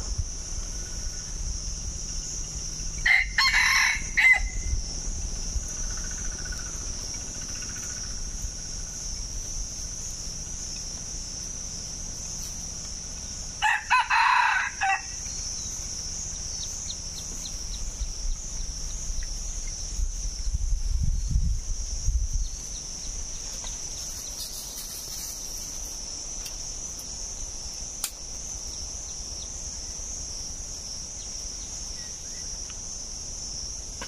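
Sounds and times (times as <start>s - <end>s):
high insect buzz: 0.0s - 34.0s
rooster crowing: 3.0s - 4.8s, 13.6s - 15.4s.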